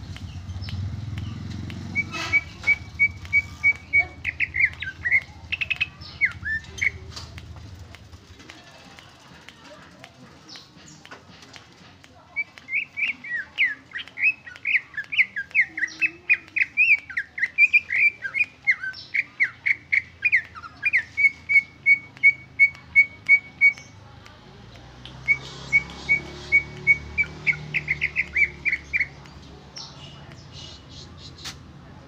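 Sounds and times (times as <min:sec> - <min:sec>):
bird singing whistles and trills: 0:01.8 - 0:07.0, 0:12.4 - 0:23.9, 0:25.2 - 0:29.2.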